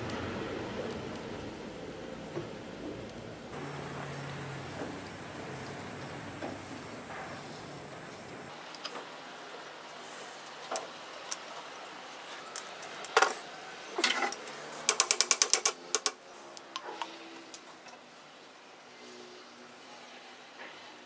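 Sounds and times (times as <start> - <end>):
sword parts clicking on workbench: 14.0 - 16.2.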